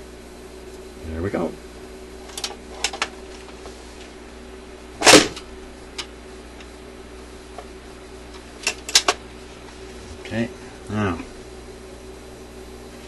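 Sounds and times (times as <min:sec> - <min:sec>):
turntable low hum: 0:00.0 - 0:13.0
record changer clunk: 0:05.0 - 0:06.7, 0:08.4 - 0:09.2.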